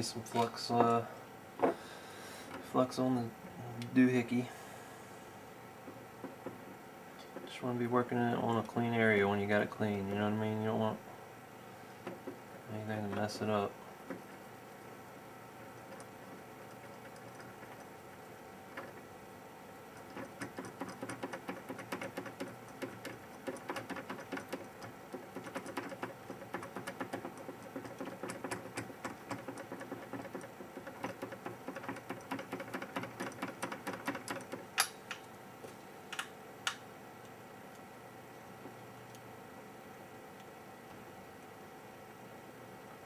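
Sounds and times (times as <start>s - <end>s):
rapid scrubbing on metal jig: 19.9s - 34.6s.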